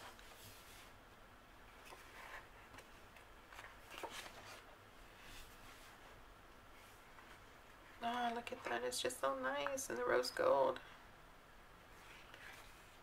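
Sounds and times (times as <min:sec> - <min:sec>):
paper sheets rustling: 0:01.7 - 0:06.1.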